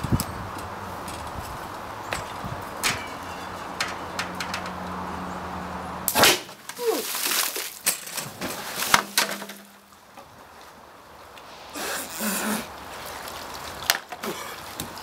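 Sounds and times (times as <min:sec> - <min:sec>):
knocks and clatter: 0:02.1 - 0:05.0
loud sharp crack: 0:06.1 - 0:07.7
hit and splash into water: 0:06.1 - 0:09.7.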